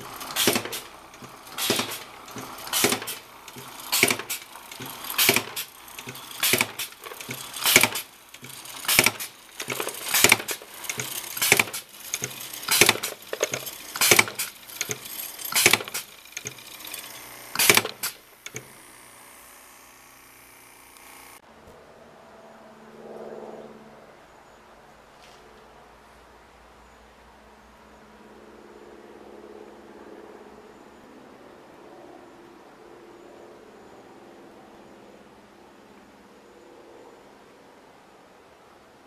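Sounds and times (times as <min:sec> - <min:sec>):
bottle corking machine clacking: 0:00.0 - 0:18.8.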